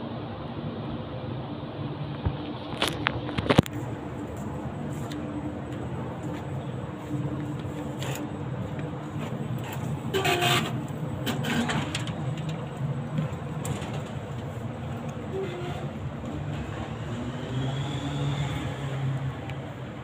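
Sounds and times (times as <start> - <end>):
station hum: 0.0 - 20.0
ticket gate doors opening: 9.7 - 12.6, 15.2 - 16.0.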